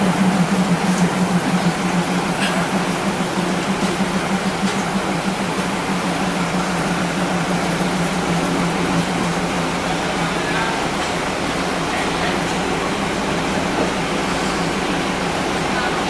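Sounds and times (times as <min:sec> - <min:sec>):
diesel train engine idling: 0:00.0 - 0:16.0.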